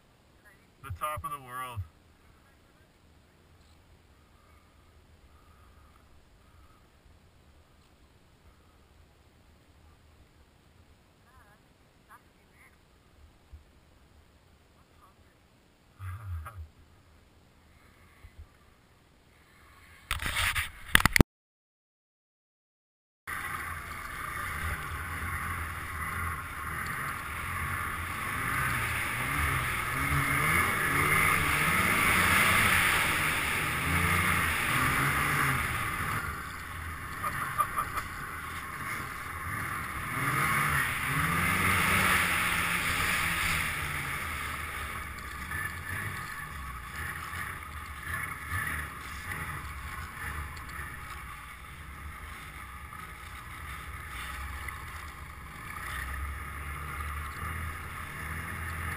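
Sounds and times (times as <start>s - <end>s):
snowmobile engine revving: 23.3s - 58.9s.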